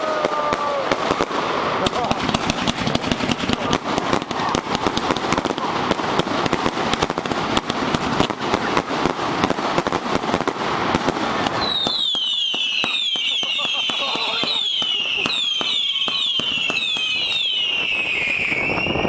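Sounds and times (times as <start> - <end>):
firework cake shots and crackle: 0.0 - 19.0
falling firework whistles: 11.5 - 19.0.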